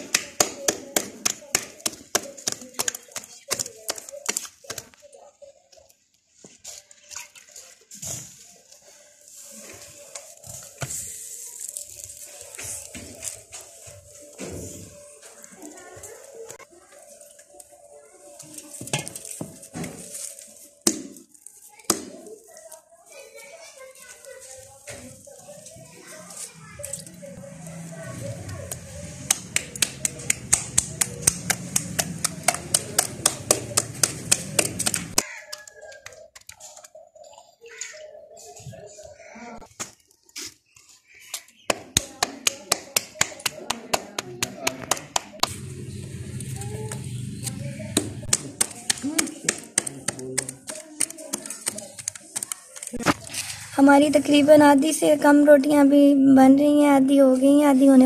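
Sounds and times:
hands slapping dough: 0.0s - 5.0s, 28.6s - 36.9s, 41.3s - 45.6s, 47.9s - 53.4s.

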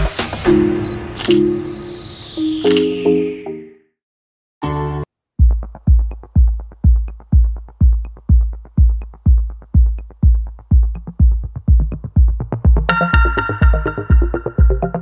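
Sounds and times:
synth melody: 0.5s - 3.9s, 12.9s - 15.0s
electronic drum beat: 5.4s - 15.0s.

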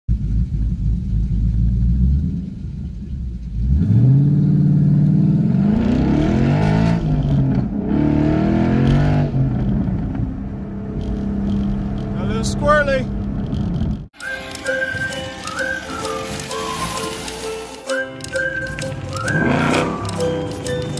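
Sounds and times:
car engine revving through gears: 3.6s - 14.1s, 18.4s - 20.9s.

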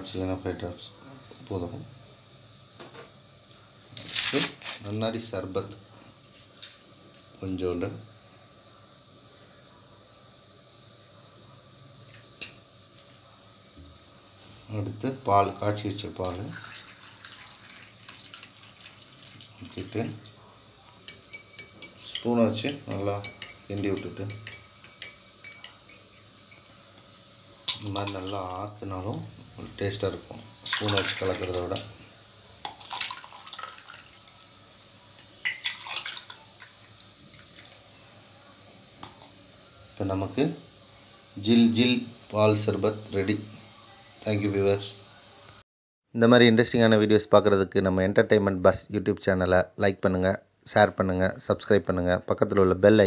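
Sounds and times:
faint steady hiss: 0.0s - 53.0s
drink splashing: 16.2s - 20.4s, 30.4s - 31.9s, 32.6s - 34.2s, 35.4s - 37.8s
ice cubes clinking: 16.5s - 20.0s, 30.6s - 31.6s, 32.6s - 34.2s, 35.4s - 36.7s.

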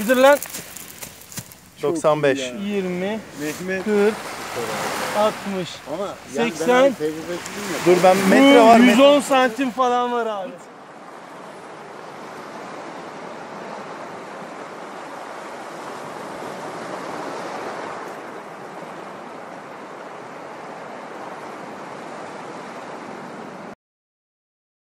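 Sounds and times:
sea waves rushing: 0.0s - 23.8s.

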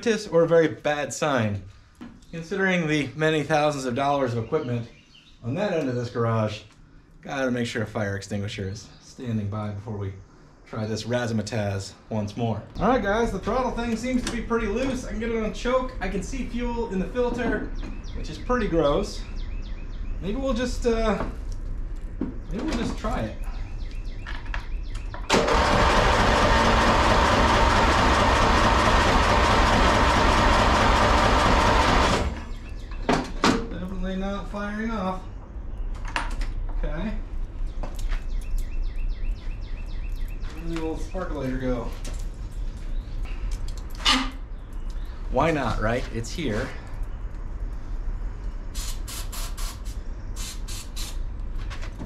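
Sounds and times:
lawn mower engine cranking: 25.3s - 32.6s
aerosol spray hissing: 48.8s - 51.2s.

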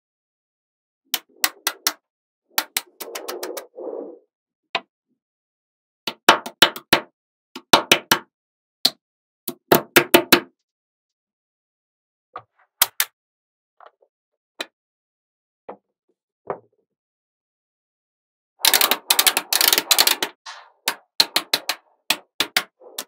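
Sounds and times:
magnetic balls clicking together: 18.6s - 23.0s.

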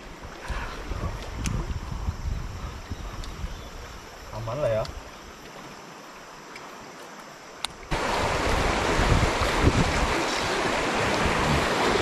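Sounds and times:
wind buffeting microphone: 0.0s - 5.1s, 7.9s - 12.0s
river rapids rushing: 7.9s - 12.0s.

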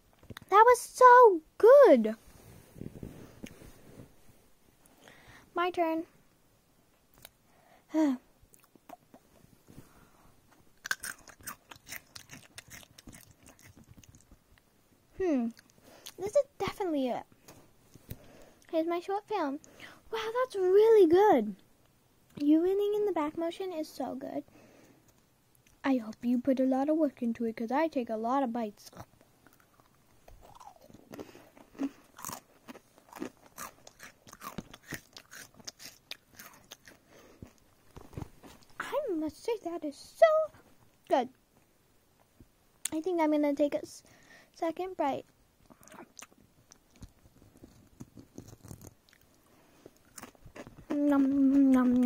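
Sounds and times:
child making chewing noises: 7.1s - 9.4s, 10.8s - 14.4s, 15.2s - 16.8s, 28.8s - 37.6s, 45.6s - 49.3s, 50.0s - 52.0s
crunching crisp food: 10.8s - 14.4s, 29.0s - 38.7s, 45.6s - 52.0s.

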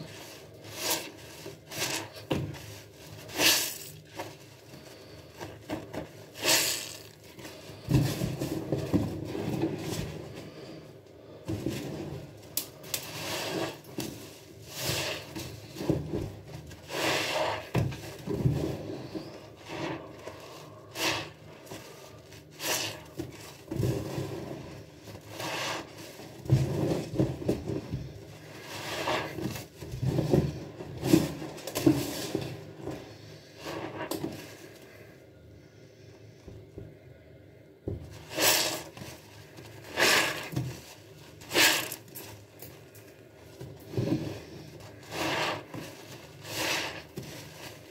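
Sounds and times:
wet sponge squelching: 44.5s - 47.9s.

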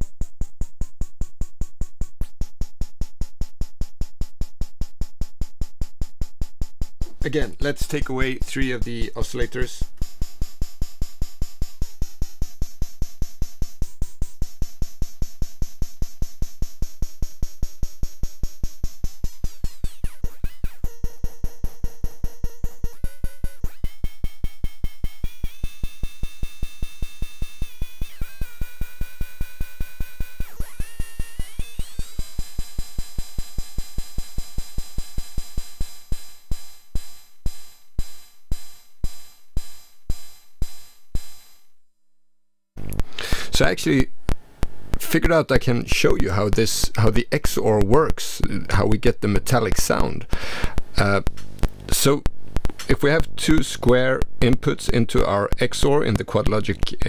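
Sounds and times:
metallic electronic percussion hits: 0.0s - 41.7s.

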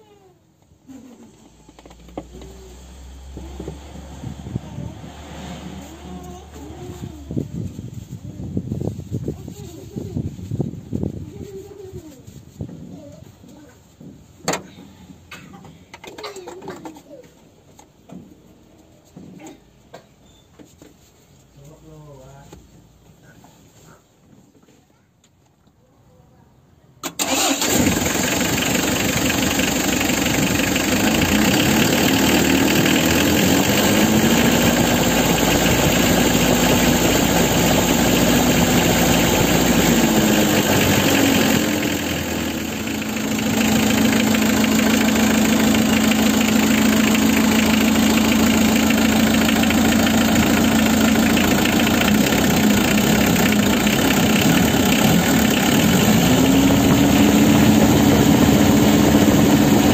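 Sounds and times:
diesel engine idling: 27.2s - 59.9s.

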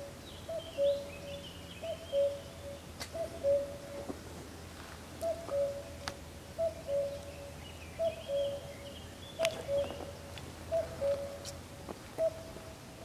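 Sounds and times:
faint high bird chirps: 0.0s - 4.0s, 6.6s - 11.6s
cuckoo calling: 0.0s - 4.1s, 5.2s - 11.6s, 12.2s - 12.8s.

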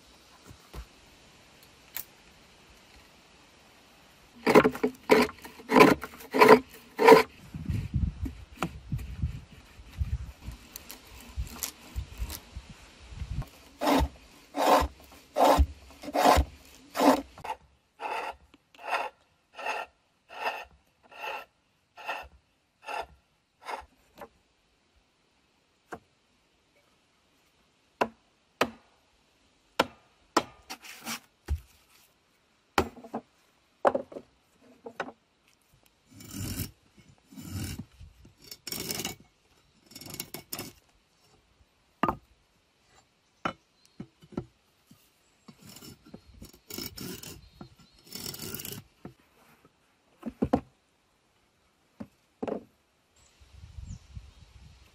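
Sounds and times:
hand tool scraping wood: 4.4s - 12.4s, 13.4s - 24.3s, 30.6s - 32.1s, 36.1s - 40.9s, 44.8s - 49.8s.

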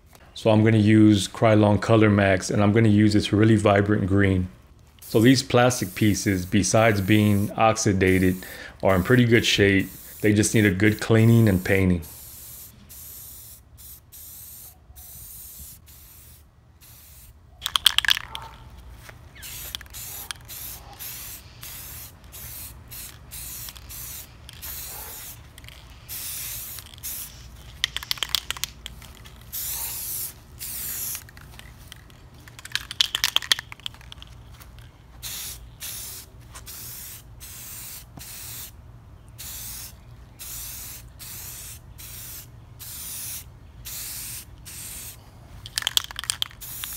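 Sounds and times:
spray paint can hissing: 4.9s - 18.4s, 19.0s - 34.6s, 35.2s - 38.8s, 39.4s - 46.9s
spray can mixing ball rattling: 16.9s - 18.4s, 19.4s - 38.4s, 42.9s - 46.9s.

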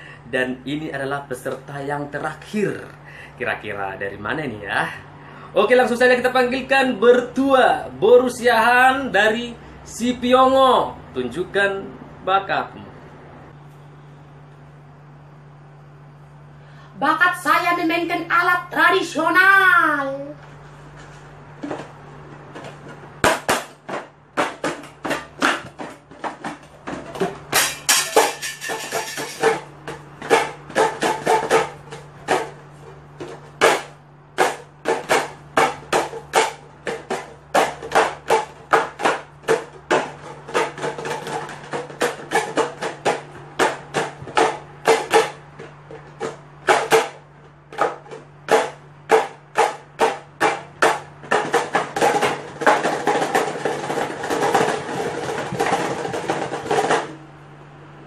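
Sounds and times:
metal canisters knocked together: 21.6s - 57.2s.

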